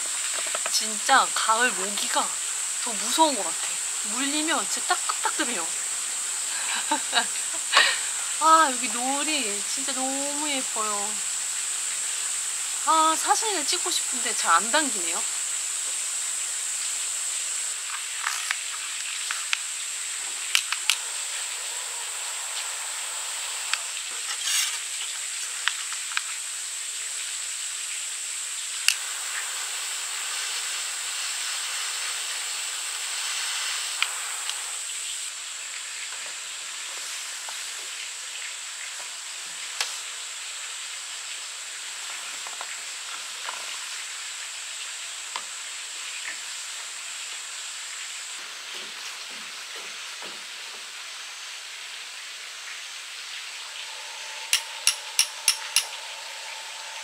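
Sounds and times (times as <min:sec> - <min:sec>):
torch lighter flame hissing: 0:00.0 - 0:26.3, 0:28.7 - 0:35.3, 0:53.4 - 0:57.0
high-pitched outdoor hiss: 0:00.0 - 0:57.0
small clicks: 0:20.5 - 0:21.0.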